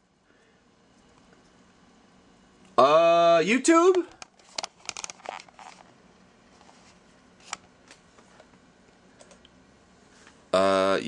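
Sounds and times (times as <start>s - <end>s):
faint steady hum: 0.0s - 11.0s
small clicks and rustles: 4.2s - 5.9s.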